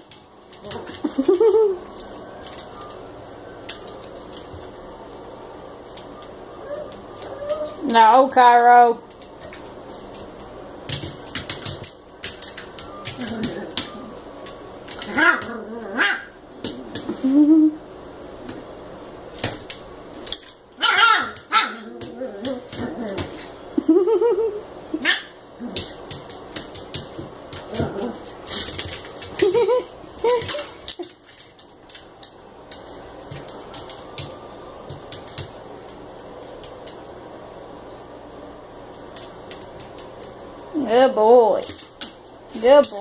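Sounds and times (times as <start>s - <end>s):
puppy claws clicking on floor: 0.0s - 5.2s, 9.0s - 15.6s, 19.3s - 20.6s, 25.6s - 37.0s, 38.9s - 40.7s, 41.5s - 43.0s
small dogs yapping: 6.6s - 7.8s, 14.9s - 16.9s, 20.8s - 23.5s, 25.0s - 25.9s
dog growling: 13.2s - 14.2s, 15.1s - 16.1s, 21.8s - 23.5s, 27.7s - 28.3s.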